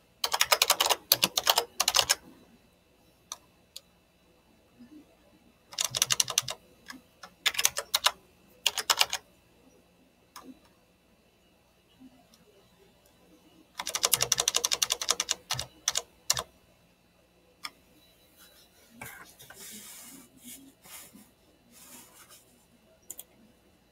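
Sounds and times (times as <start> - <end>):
computer keyboard typing: 0.2 - 2.2, 5.7 - 6.6, 7.2 - 9.2, 13.8 - 16.5, 23.1 - 23.3.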